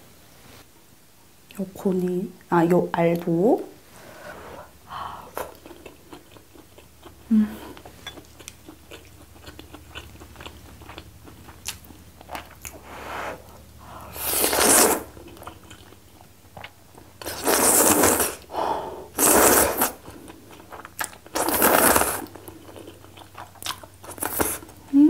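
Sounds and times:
loud slurping of noodles: 0:14.1 - 0:15.1, 0:17.2 - 0:18.5, 0:19.1 - 0:20.0, 0:21.4 - 0:22.3.

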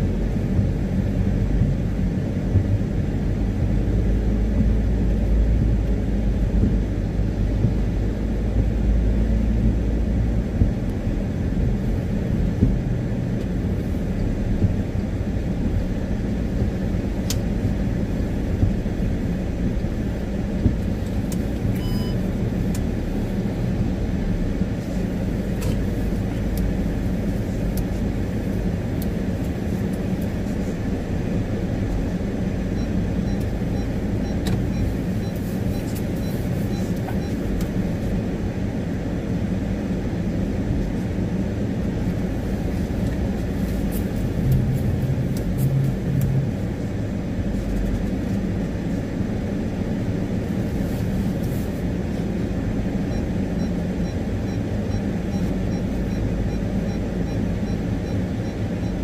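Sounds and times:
car tyre and engine rumble: 0:00.0 - 0:59.0
light ticks: 0:17.2 - 0:17.5, 0:22.7 - 0:22.9
short beep: 0:21.8 - 0:22.2.

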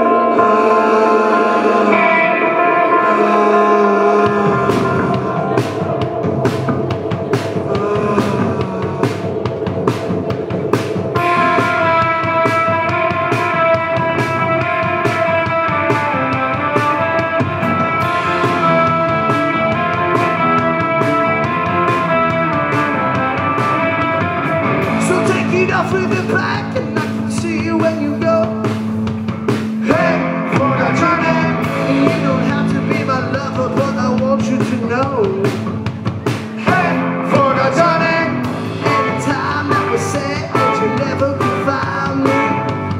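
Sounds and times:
bass guitar: 0:00.0 - 0:42.9
drum kit beat: 0:00.0 - 0:42.9
electric guitars: 0:00.0 - 0:42.9.

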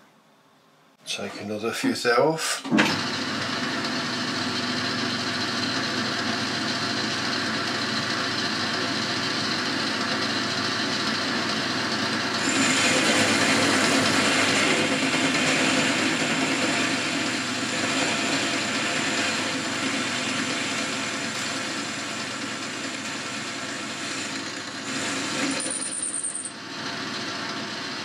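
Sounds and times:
lathe running: 0:02.9 - 0:28.0.

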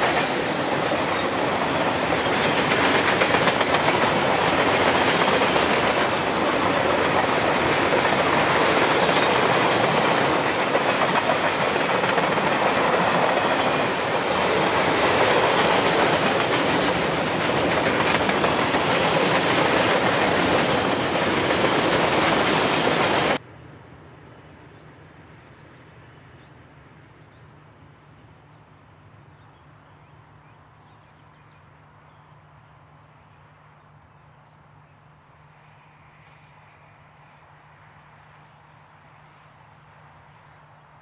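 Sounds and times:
freight train wheels on rails: 0:00.0 - 0:23.4
distant train: 0:00.0 - 0:41.0.

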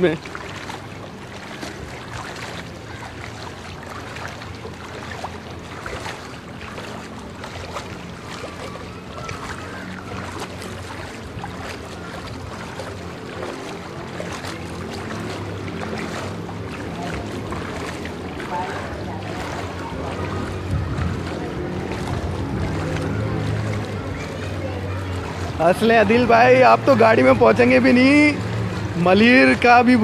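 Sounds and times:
wading through water sloshing: 0:00.0 - 0:30.0.

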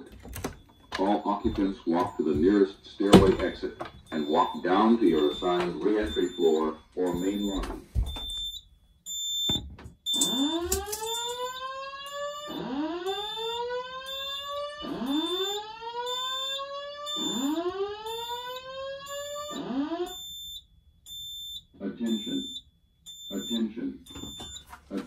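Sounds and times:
spoken evacuation messages: 0:00.9 - 0:08.3, 0:17.1 - 0:17.6, 0:21.7 - 0:22.6, 0:23.2 - 0:25.0
fire alarm whoop tone: 0:04.1 - 0:24.7.

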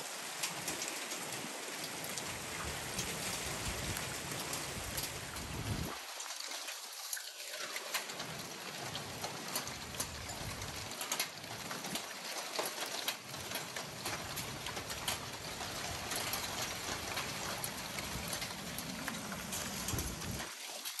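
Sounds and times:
heavy rain hissing: 0:00.0 - 0:06.4, 0:13.2 - 0:21.0
hailstones ticking: 0:00.0 - 0:07.0, 0:07.8 - 0:21.0.

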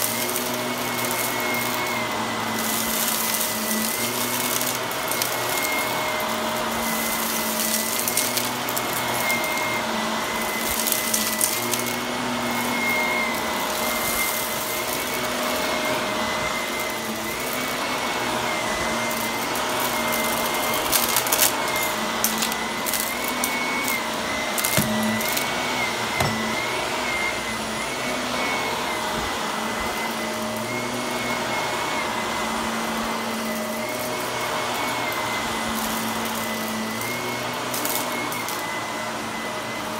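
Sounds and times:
debris crunching in vacuum: 0:00.0 - 0:26.7
vacuum cleaner motor whine: 0:00.0 - 0:39.9.

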